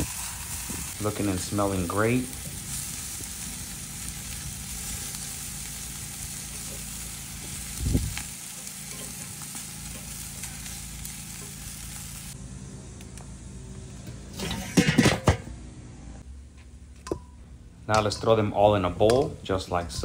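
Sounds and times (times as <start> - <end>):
chicken wings sizzling on grill: 0.0 - 15.0.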